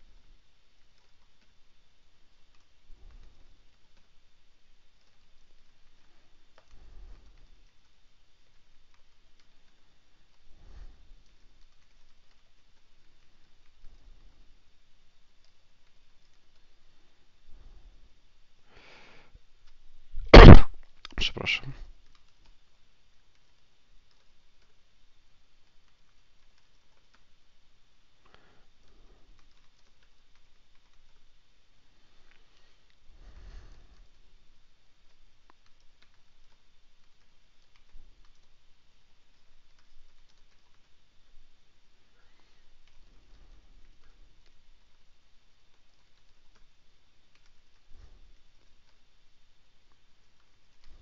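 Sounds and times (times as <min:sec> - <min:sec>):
keyboard typing: 0:00.8 - 0:01.6, 0:02.2 - 0:04.2, 0:04.8 - 0:14.5, 0:15.3 - 0:16.7, 0:22.0 - 0:22.6, 0:23.2 - 0:24.8, 0:25.6 - 0:27.3, 0:28.2 - 0:31.3, 0:35.0 - 0:38.6, 0:39.3 - 0:41.0, 0:45.7 - 0:49.1, 0:49.9 - 0:51.0.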